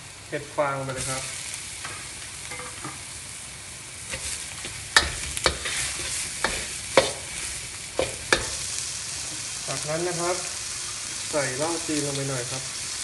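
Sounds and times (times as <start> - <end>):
mushrooms sizzling in wok: 0.0 - 13.0
metal spatula scraping wok: 4.1 - 9.4.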